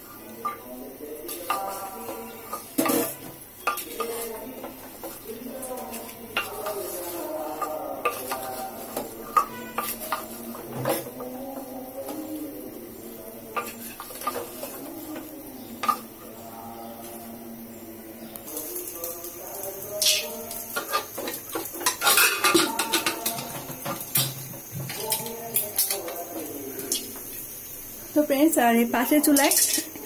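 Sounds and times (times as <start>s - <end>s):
spatula scraping metal pot: 0.0s - 12.3s, 20.0s - 26.2s.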